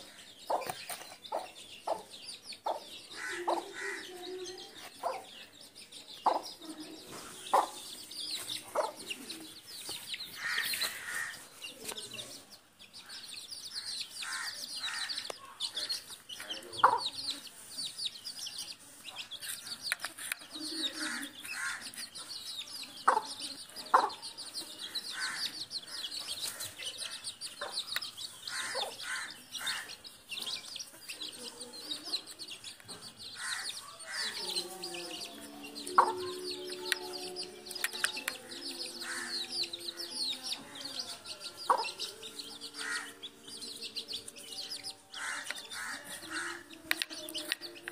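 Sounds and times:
beaks pecking on tiled floor: 0:00.0 - 0:47.9
chicks peeping: 0:00.0 - 0:47.9
hen clucking: 0:00.5 - 0:05.4, 0:08.6 - 0:09.4, 0:33.4 - 0:40.9, 0:41.6 - 0:43.3.

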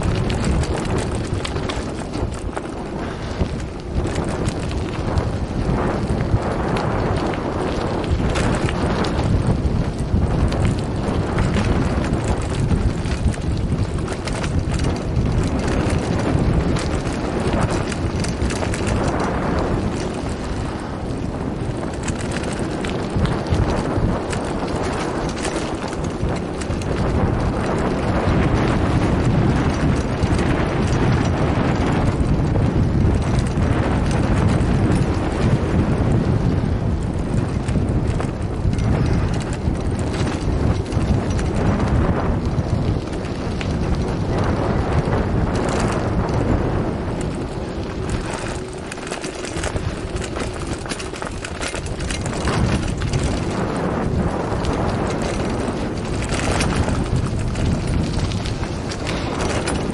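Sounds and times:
bike clattering: 0:00.0 - 0:59.9
wind buffeting microphone: 0:00.0 - 0:59.9
tyres crunching on gravel: 0:38.9 - 0:59.9.

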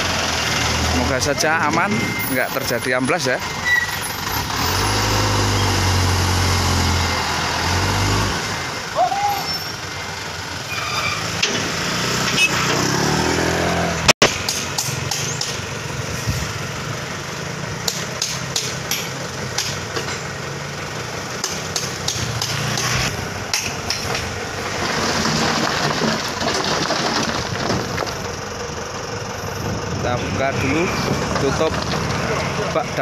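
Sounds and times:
diesel truck engine running: 0:00.0 - 0:33.0
sharp clicks and knocks: 0:21.4 - 0:24.3.

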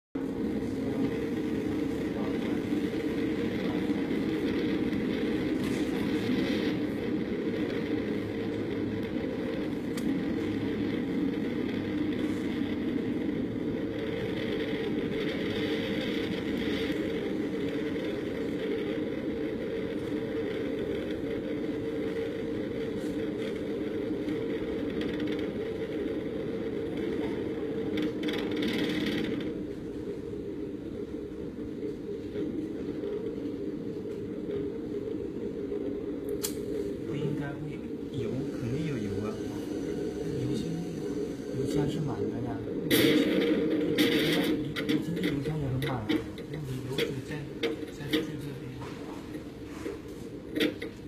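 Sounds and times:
rushing air: 0:00.2 - 0:44.8
light aircraft engine drone: 0:00.2 - 0:51.0.

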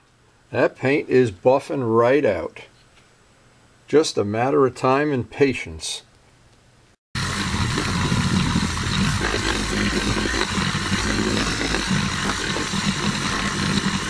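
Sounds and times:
electric buffer chattering whir: 0:07.2 - 0:14.0.

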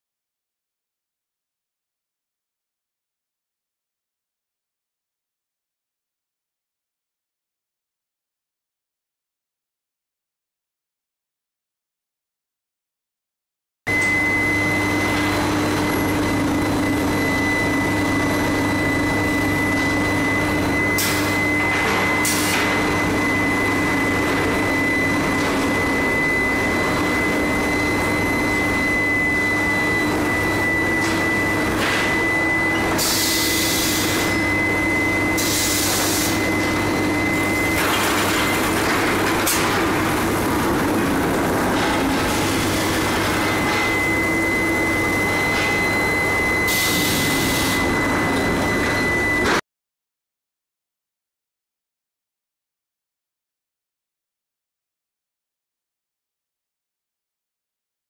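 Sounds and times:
high machine whine: 0:13.9 - 0:49.6.

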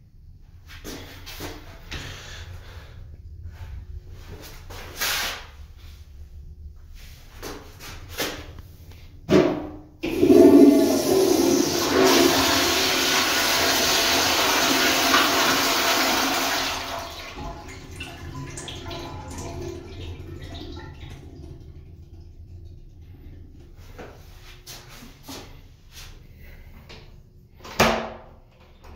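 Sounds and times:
toilet flushing water rush: 0:10.0 - 0:25.0.

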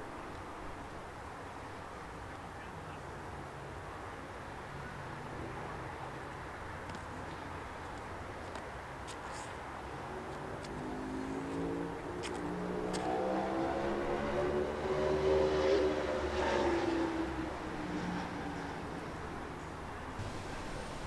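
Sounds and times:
vehicle engine passing: 0:10.0 - 0:19.6.

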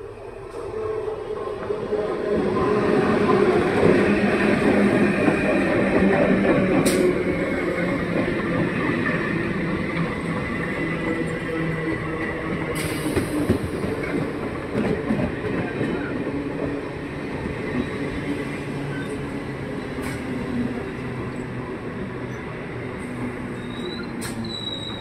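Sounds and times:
train hum and rumble: 0:00.0 - 0:25.0.

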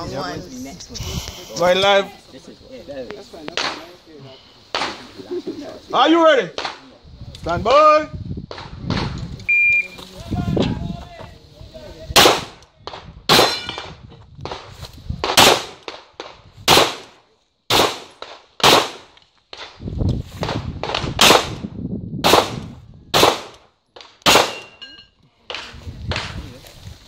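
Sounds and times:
pistol shots: 0:12.2 - 0:13.9, 0:15.2 - 0:16.0, 0:16.7 - 0:19.1, 0:20.4 - 0:21.6, 0:22.2 - 0:24.8.

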